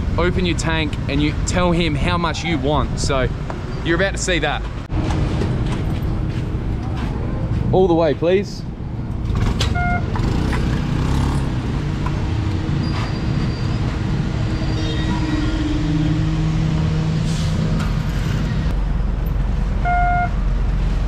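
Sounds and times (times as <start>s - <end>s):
road traffic passing: 0.0s - 21.0s.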